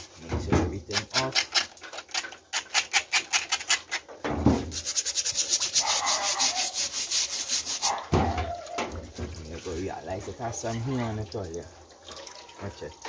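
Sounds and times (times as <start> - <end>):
running tap water: 4.8 - 13.0.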